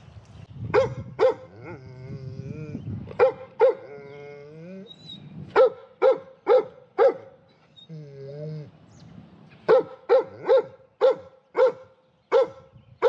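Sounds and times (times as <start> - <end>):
dog barking: 0.8 - 1.8, 3.2 - 3.9, 5.6 - 7.4, 9.7 - 12.7.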